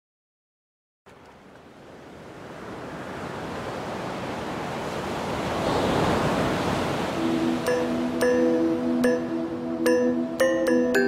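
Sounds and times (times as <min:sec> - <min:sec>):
music with held low tones: 0:07.2 - 0:11.0.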